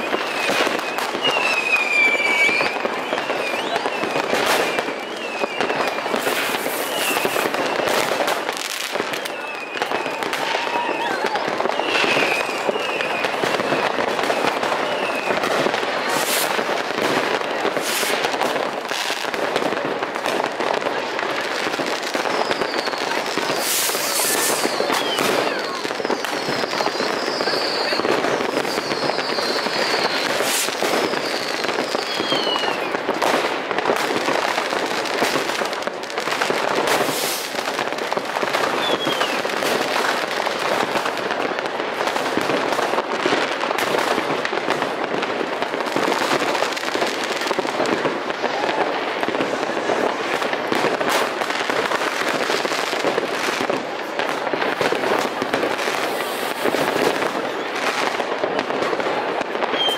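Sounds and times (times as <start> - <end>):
firework whistles falling in pitch: 0.0 - 16.7, 22.0 - 33.2, 38.5 - 41.1, 59.6 - 59.9
fireworks crackling and popping: 0.0 - 59.9
loud firework bangs: 0.0 - 59.9.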